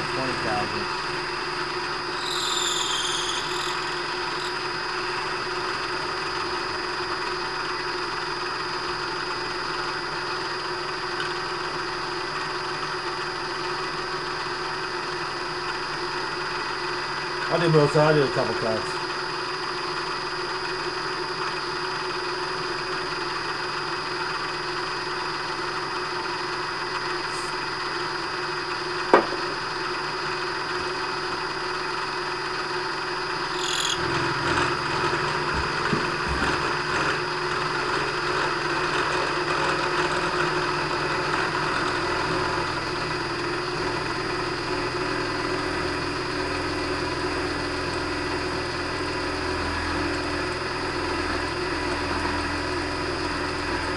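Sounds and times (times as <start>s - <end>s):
milling machine cutting metal: 0.0s - 6.8s, 33.4s - 53.9s.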